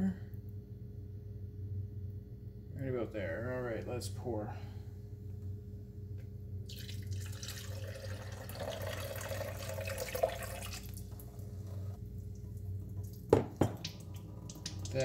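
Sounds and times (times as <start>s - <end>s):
low steady hum: 0.0s - 15.0s
thin stream into metal sink: 6.7s - 11.2s, 12.9s - 15.0s
water pouring and splashing: 6.7s - 11.3s, 12.3s - 15.0s.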